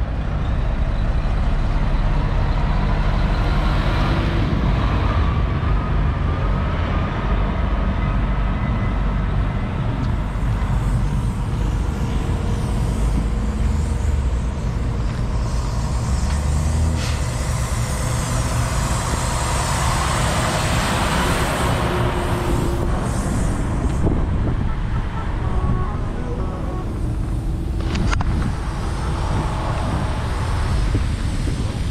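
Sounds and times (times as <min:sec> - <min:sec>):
diesel truck engine running: 0:00.0 - 0:31.9
rising hiss: 0:10.3 - 0:24.4.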